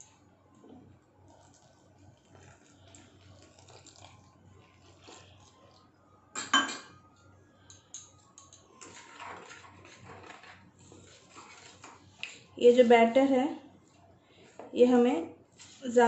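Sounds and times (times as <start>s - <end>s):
water trickling into steel bowl: 1.3s - 5.9s.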